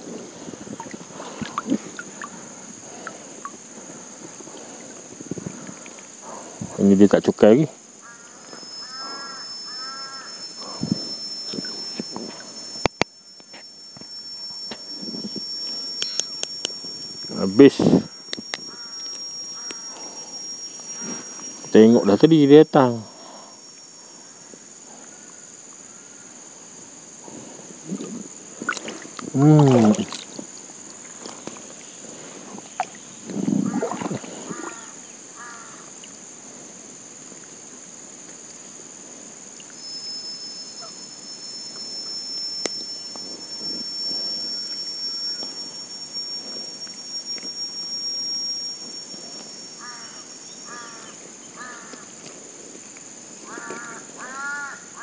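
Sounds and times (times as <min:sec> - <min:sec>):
long thin high tone: 0:00.0 - 0:36.6, 0:39.0 - 0:55.0
high insect drone: 0:00.0 - 0:55.0
crow cawing: 0:08.0 - 0:10.4, 0:18.7 - 0:20.0, 0:34.4 - 0:35.9, 0:49.8 - 0:52.2, 0:53.4 - 0:55.0.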